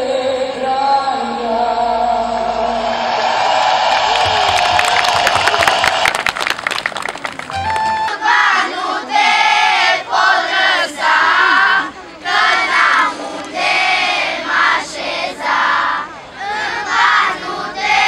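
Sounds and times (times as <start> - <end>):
hand claps: 4.2 - 8.2
children singing in unison: 8.1 - 18.0.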